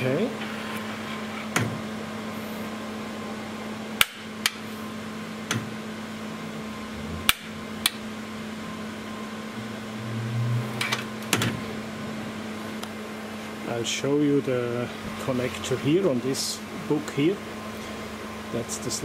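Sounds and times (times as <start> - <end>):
steady hum: 0.0 - 19.0
low rumble: 6.4 - 12.5.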